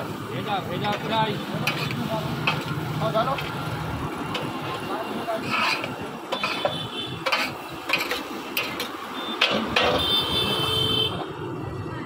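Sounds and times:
metal spatula scraping a pan: 0.9 - 2.8, 5.3 - 10.1.

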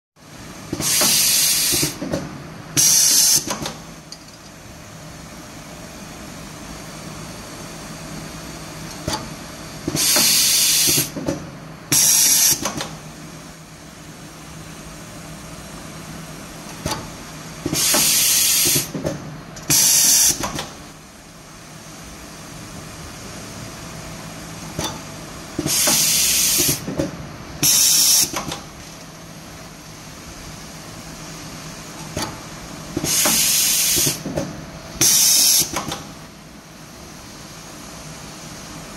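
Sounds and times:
air hissing: 9.9 - 11.1, 17.7 - 18.9, 25.6 - 26.8, 33.0 - 34.2.

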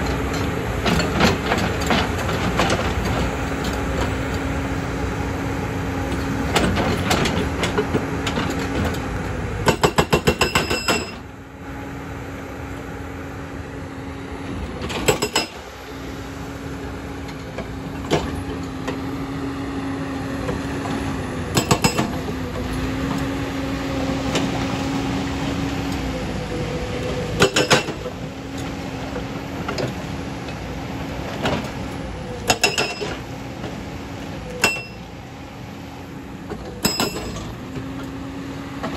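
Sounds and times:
excavator engine humming: 0.0 - 38.9
hydraulic breaker hammering stone: 9.6 - 11.2, 15.0 - 15.6, 21.5 - 22.2, 27.4 - 28.0, 34.6 - 35.0, 36.8 - 37.5.

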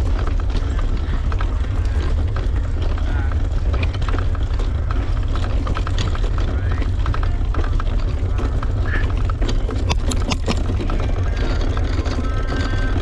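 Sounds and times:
bike ticks and rattles: 0.0 - 13.0.

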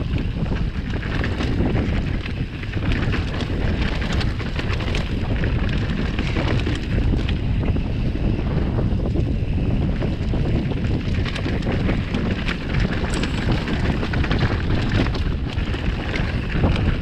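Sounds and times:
bike rattling: 0.0 - 17.0
wind buffeting microphone: 0.0 - 17.0
tyres rolling over stones: 12.0 - 17.0.

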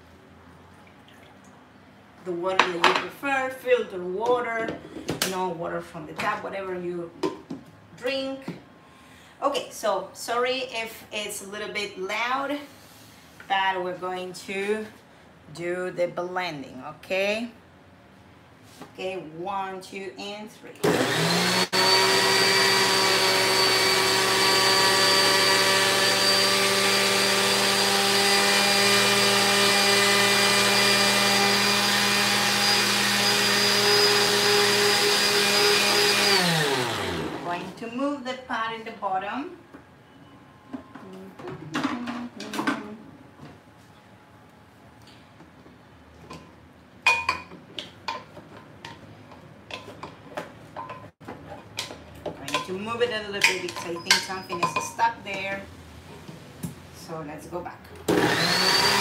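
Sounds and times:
blender motor running: 20.8 - 37.6, 58.1 - 59.0.

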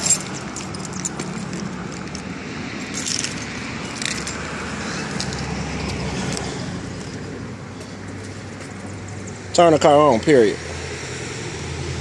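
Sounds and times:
keys jangling: 0.0 - 5.5.

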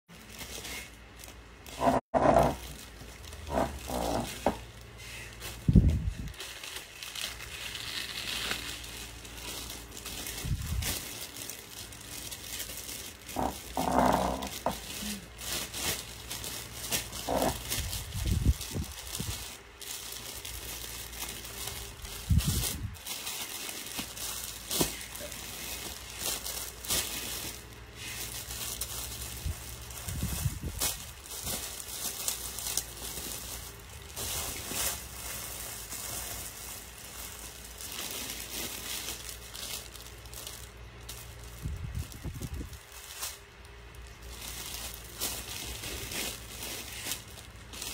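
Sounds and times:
rustling and crinkling: 0.1 - 47.9.

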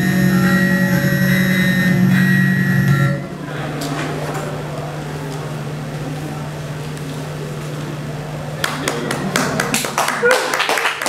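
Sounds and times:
music: 0.0 - 3.4
steady low hum: 0.0 - 9.9.

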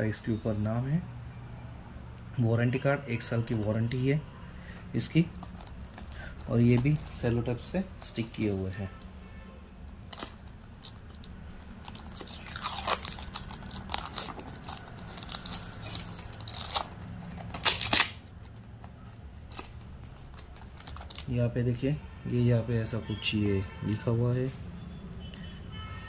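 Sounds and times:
plastic wrap crinkling: 3.3 - 4.1, 4.7 - 9.1, 10.0 - 21.4
plastic ripping: 5.0 - 9.0, 10.0 - 21.4.

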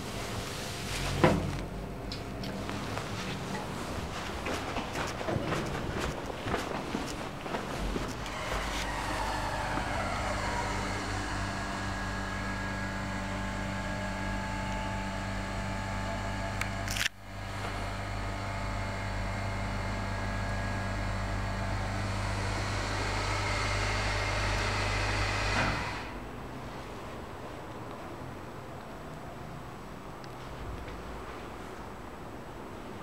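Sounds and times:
hydraulic pump humming: 7.8 - 26.2.

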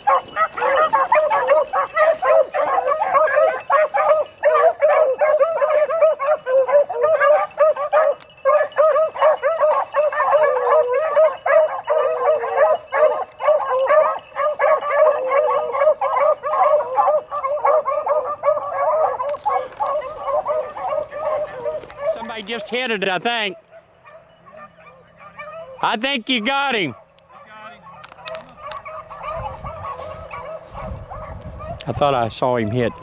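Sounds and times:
hounds baying: 0.0 - 33.0.

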